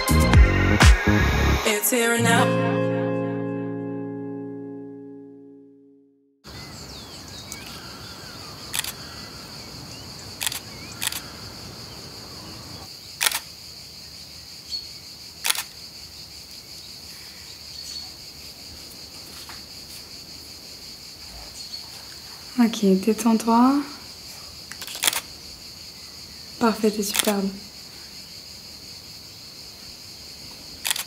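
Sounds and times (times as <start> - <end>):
music: 0.0 - 6.3
insects chirring: 6.5 - 31.0
camera shutter clicking: 8.7 - 9.0, 10.4 - 11.2, 13.2 - 13.5, 15.4 - 15.7, 24.8 - 25.2.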